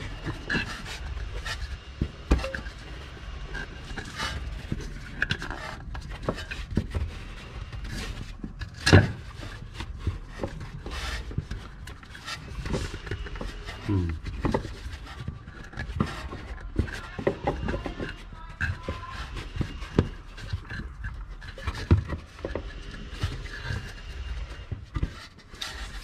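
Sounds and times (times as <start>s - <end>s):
hands working a fitting: 0.0s - 26.0s.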